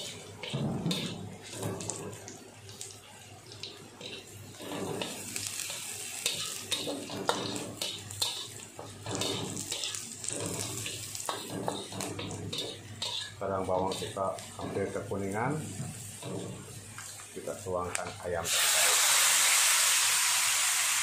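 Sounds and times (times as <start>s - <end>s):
spatula clinking and scraping: 0.0s - 15.3s
food sizzling in wok: 0.0s - 21.0s.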